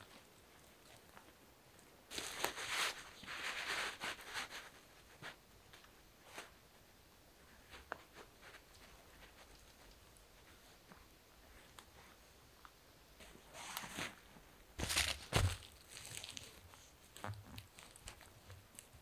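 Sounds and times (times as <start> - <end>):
dry leaves and tarp rustling: 2.1 - 4.4, 14.8 - 16.9.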